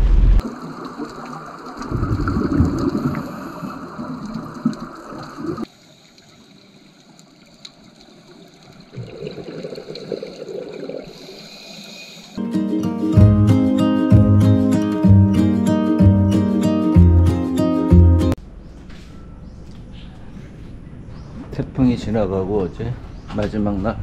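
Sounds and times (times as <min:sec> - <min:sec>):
underwater bubbles gurgling: 0:00.4 - 0:11.4.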